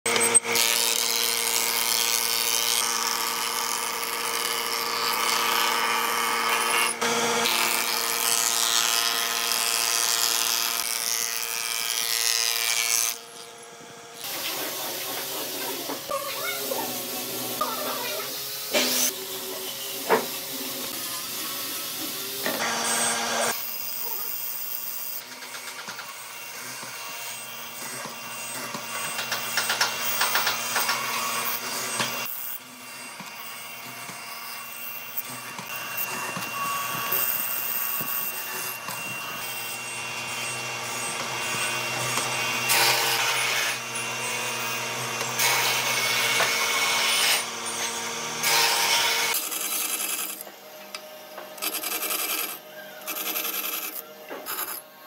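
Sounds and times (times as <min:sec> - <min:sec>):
chisel boring through wood: 0:00.1 - 0:16.1, 0:22.5 - 0:50.5, 0:51.6 - 0:54.9
mortiser motor humming: 0:13.2 - 0:23.6.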